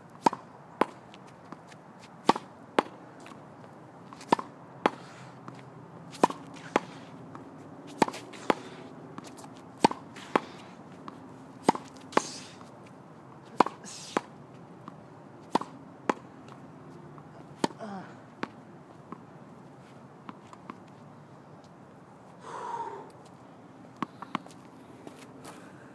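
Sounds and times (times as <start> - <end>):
tennis ball pops on racket and wall: 9.2 - 12.4.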